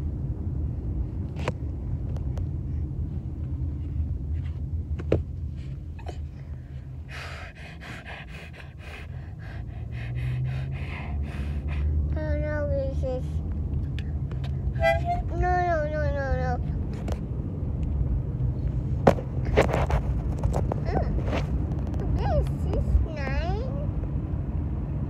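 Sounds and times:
car cabin rumble: 0.0s - 24.1s
toddler playing harmonica: 14.8s - 15.4s.

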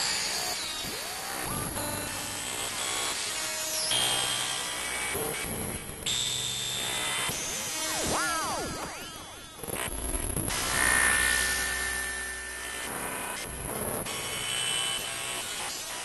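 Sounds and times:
steady high electronic tones: 1.7s - 3.2s.

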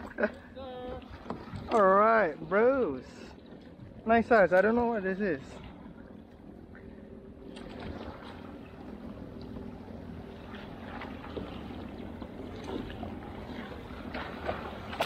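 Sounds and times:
water lapping around kayak: 0.0s - 15.0s
small splashes and knocks: 1.0s - 2.3s, 7.5s - 8.8s, 10.4s - 15.0s.

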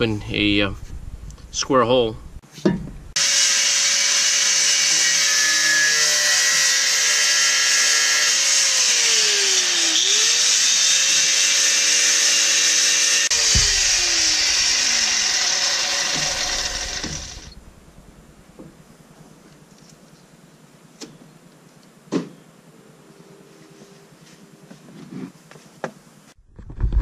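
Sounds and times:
angle grinder cutting steel: 3.2s - 17.6s.

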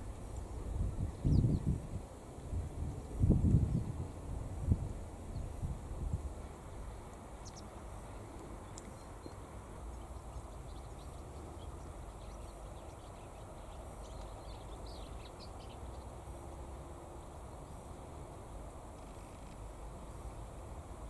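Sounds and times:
wind rumble on microphone: 0.0s - 7.1s.

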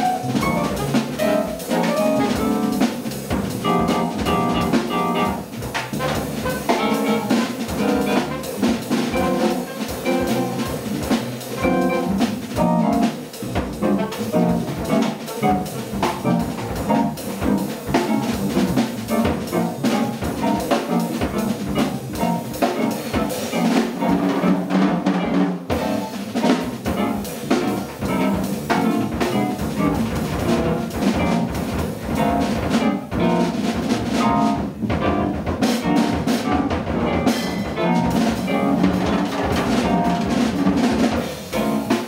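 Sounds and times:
electric keyboard: 0.0s - 3.0s, 3.6s - 5.6s, 6.4s - 10.7s, 11.6s - 42.0s
saxophone: 0.0s - 3.0s, 3.6s - 13.1s
drum and cymbal strokes: 0.0s - 24.1s
upright double bass: 0.0s - 42.0s.

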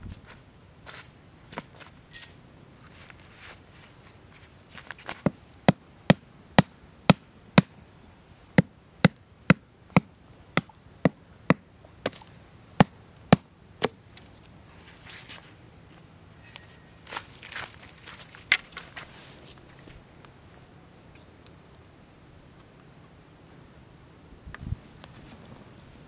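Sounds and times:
wooden stick hammering stake: 5.0s - 7.8s, 8.6s - 14.3s.

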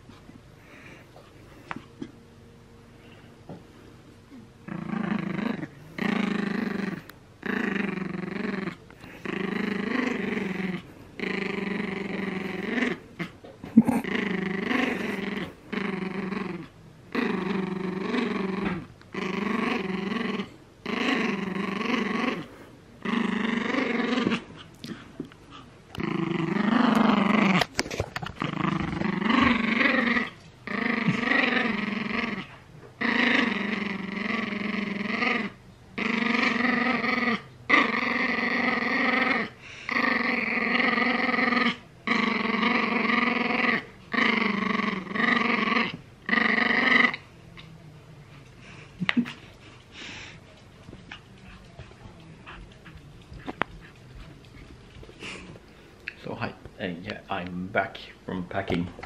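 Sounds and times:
small dog growling: 4.3s - 47.7s
dog breathing: 49.8s - 50.4s.

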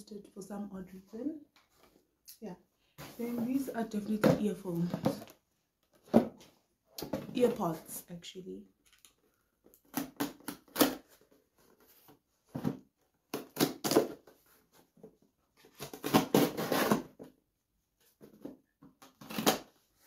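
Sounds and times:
knife cutting cardboard box: 15.6s - 17.3s.

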